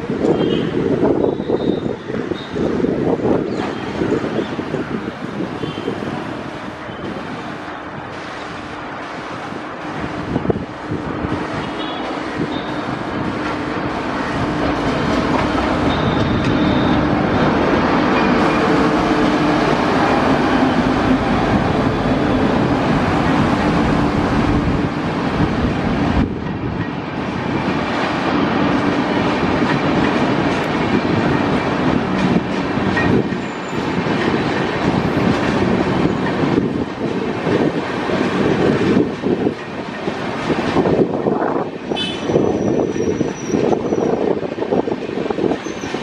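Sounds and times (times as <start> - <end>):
train passing close by: 0.0 - 46.0
wheels clattering on rails: 9.7 - 46.0.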